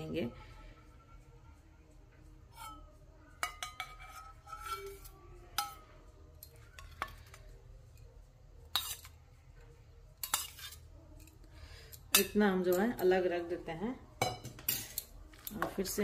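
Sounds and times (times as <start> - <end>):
spoon clinking on steel bowls: 2.5 - 9.2, 10.2 - 13.2, 14.2 - 16.0.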